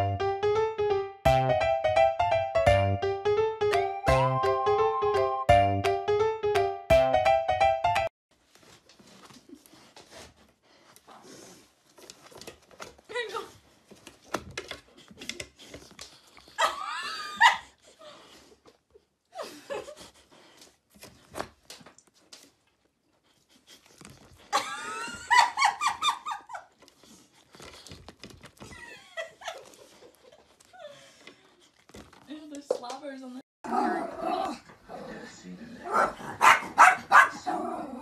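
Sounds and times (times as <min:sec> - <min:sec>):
dog yelping: 0:35.9 - 0:37.5.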